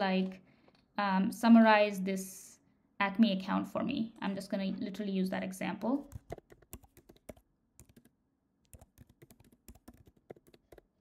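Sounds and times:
faint keyboard typing: 0:05.8 - 0:11.0.

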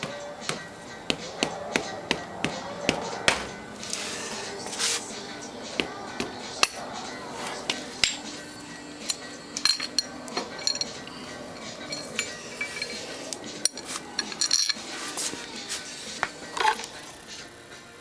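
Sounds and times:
background music: 0:00.0 - 0:18.0
metallic clinks and knocks: 0:09.0 - 0:14.9.

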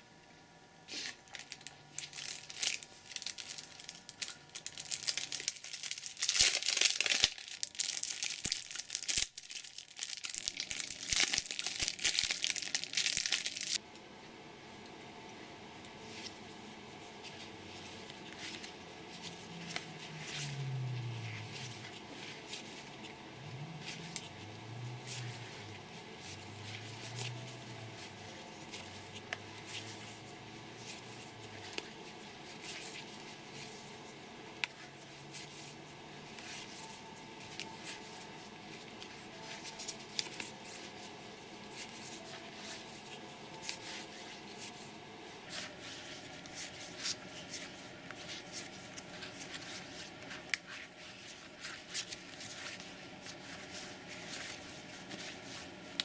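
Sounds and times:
low hum: 0:13.6 - 0:56.0.

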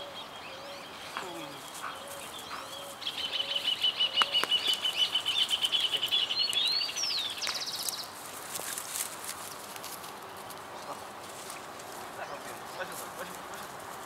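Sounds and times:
bird singing: 0:00.0 - 0:08.2.

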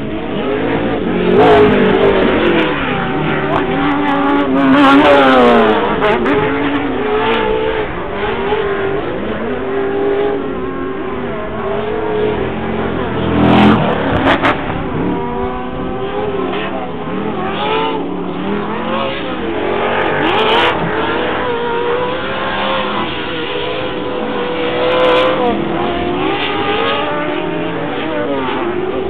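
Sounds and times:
race engines revving: 0:00.0 - 0:29.0.

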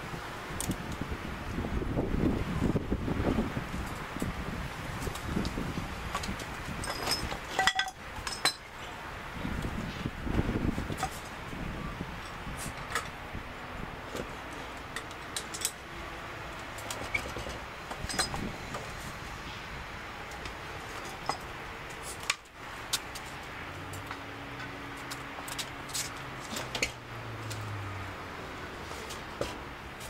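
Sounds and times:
metallic chain clinks and taps: 0:06.8 - 0:08.6.

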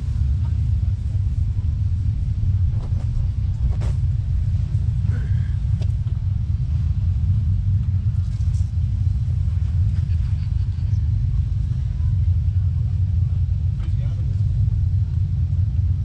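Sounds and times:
wind buffeting the microphone: 0:00.0 - 0:16.0.

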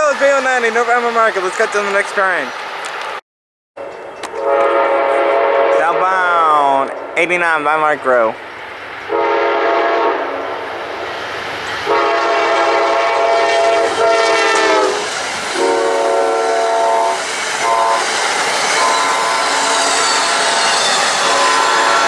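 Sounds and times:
train cars rushing clatter: 0:00.0 - 0:03.2, 0:10.5 - 0:22.0
train chime horn blasts: 0:04.3 - 0:06.2, 0:11.9 - 0:15.0, 0:15.6 - 0:18.0, 0:18.8 - 0:22.0.

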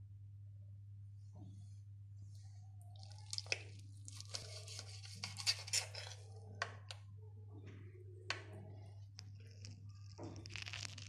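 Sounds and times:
knife scraping a plate: 0:04.1 - 0:06.3.

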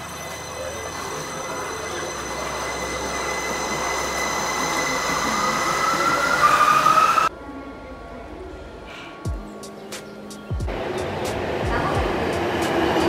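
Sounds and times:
electric train running noise: 0:00.0 - 0:07.3, 0:10.7 - 0:13.0.

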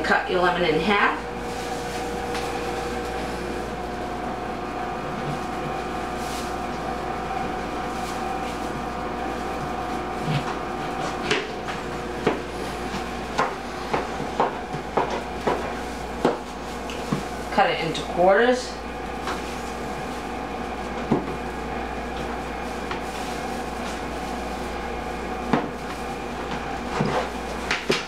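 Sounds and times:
steady hum: 0:00.0 - 0:28.0.

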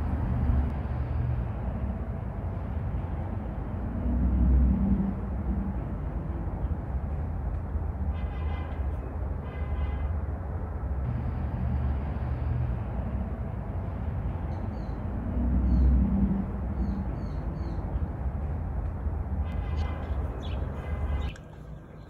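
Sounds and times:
bird chirps: 0:19.8 - 0:22.0.

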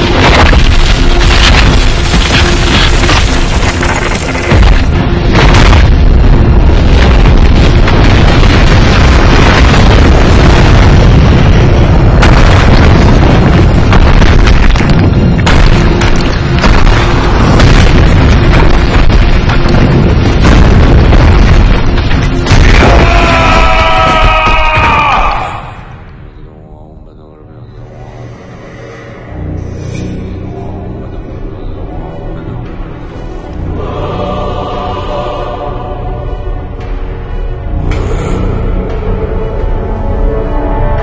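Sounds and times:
rock crashing and shattering: 0:00.0 - 0:25.6
film music: 0:00.0 - 0:41.0.

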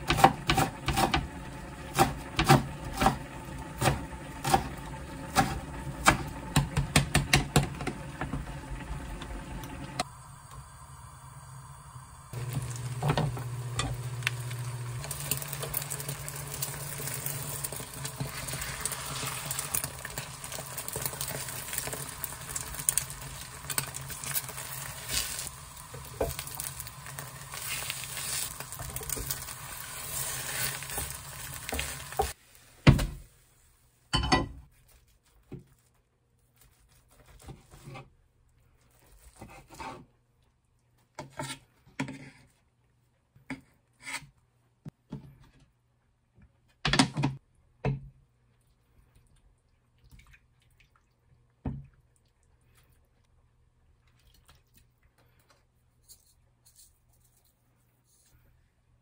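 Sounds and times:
egg sizzling in frying pan: 0:00.0 - 0:32.7.

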